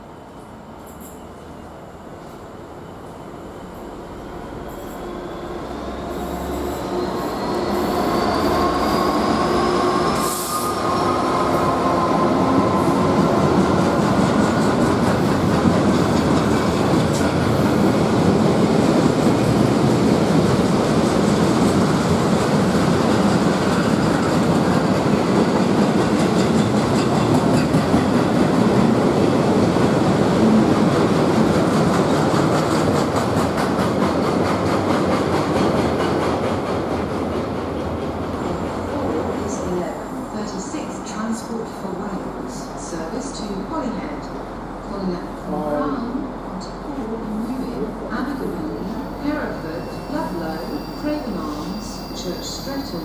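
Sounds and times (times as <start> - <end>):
diesel locomotive whine: 1.6 - 25.5, 38.1 - 53.0.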